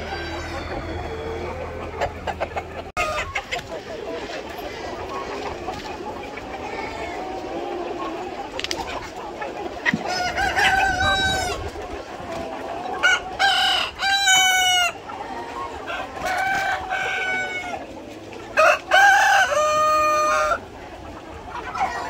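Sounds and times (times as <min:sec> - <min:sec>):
roosters crowing: 0:00.0 - 0:03.5, 0:10.0 - 0:11.8, 0:12.9 - 0:17.9, 0:18.5 - 0:20.7
hens clucking: 0:00.0 - 0:22.0.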